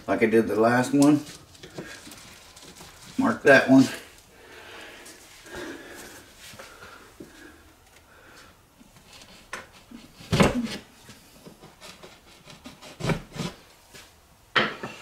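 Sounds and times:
rubbing and scraping on drywall: 0:08.8 - 0:14.1.

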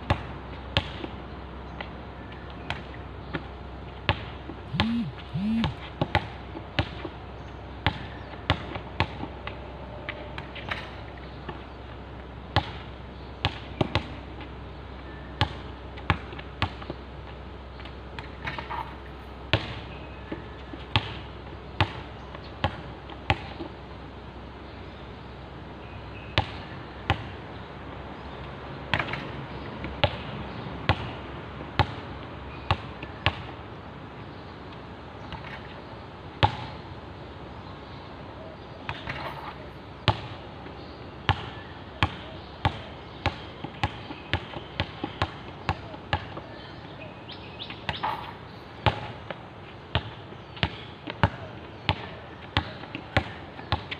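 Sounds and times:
basketball bouncing on hard court: 0:04.1 - 0:07.0, 0:36.4 - 0:36.7, 0:41.3 - 0:46.4, 0:47.9 - 0:53.9.

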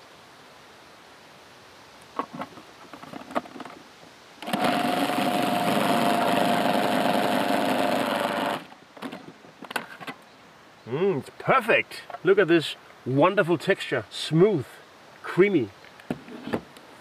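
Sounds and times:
food processor motor running: 0:04.4 - 0:08.7.

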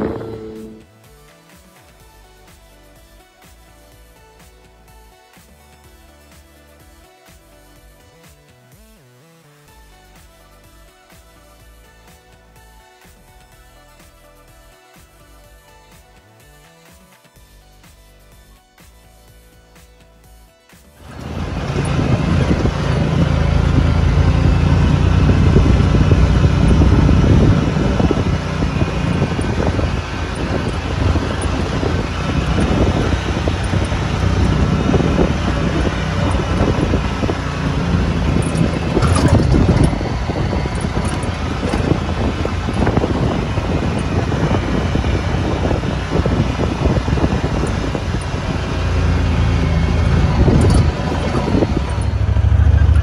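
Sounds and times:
wind noise: 0:00.0 - 0:00.8, 0:21.1 - 0:53.0
vehicle engine running: 0:00.0 - 0:00.9, 0:21.0 - 0:53.0
tyre noise: 0:21.0 - 0:53.0.

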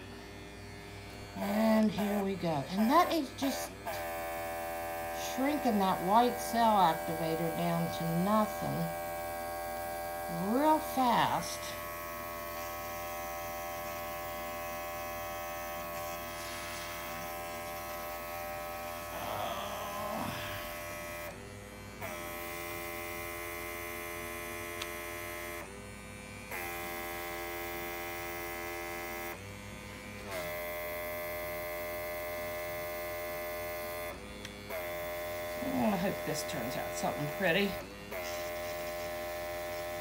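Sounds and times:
airbrush compressor humming: 0:00.0 - 0:40.0
airbrush air hissing: 0:15.8 - 0:20.8.

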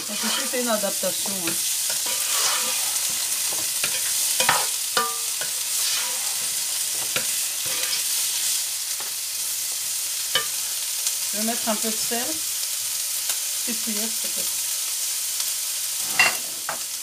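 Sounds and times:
spatula scraping a pan: 0:00.0 - 0:09.1, 0:16.0 - 0:16.8
vegetables sizzling in oil: 0:00.0 - 0:17.0.

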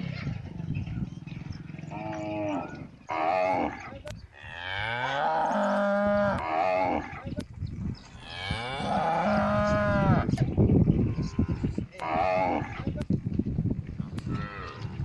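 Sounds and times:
cattle mooing: 0:01.2 - 0:07.2, 0:08.2 - 0:10.4, 0:11.0 - 0:12.9, 0:14.3 - 0:15.0.

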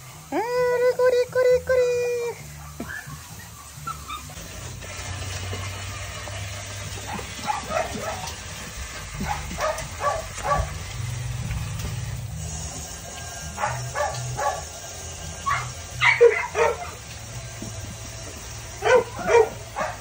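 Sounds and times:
puppies yipping: 0:02.4 - 0:04.9, 0:06.8 - 0:12.0, 0:13.4 - 0:20.0.

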